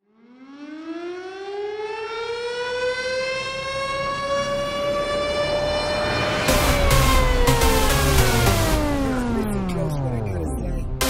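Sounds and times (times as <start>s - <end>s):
siren winding up: 4.2s - 11.0s.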